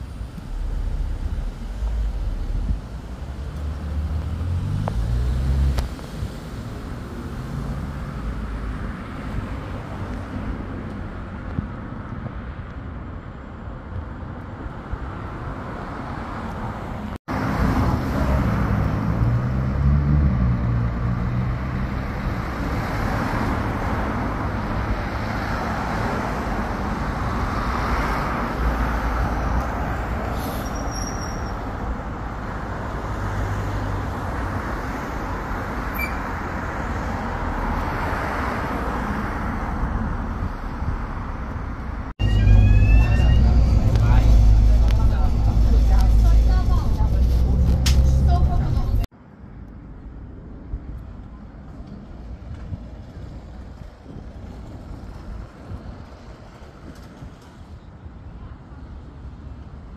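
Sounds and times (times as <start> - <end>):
vehicle passing: 0.0 - 10.0, 16.1 - 30.3, 42.2 - 49.1
road traffic rumble and hiss: 0.0 - 59.9.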